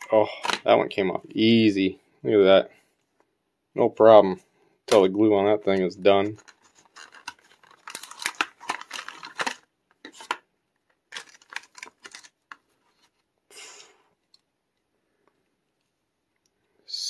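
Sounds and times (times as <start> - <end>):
plastic blister pack crackling: 6.1 - 10.4, 11.1 - 12.7.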